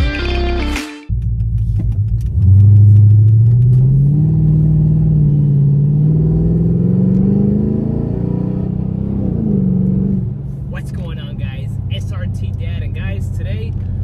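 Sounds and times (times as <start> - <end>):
vehicle engine accelerating: 1.1 - 11.9.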